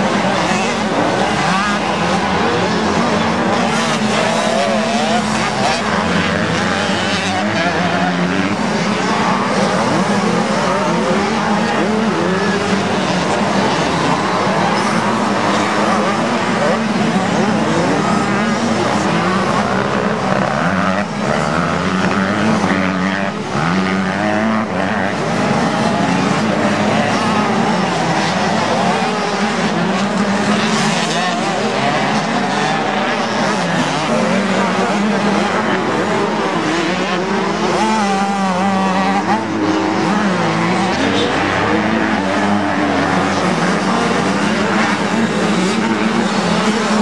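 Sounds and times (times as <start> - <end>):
dirt bike engine revving: 0.0 - 47.0.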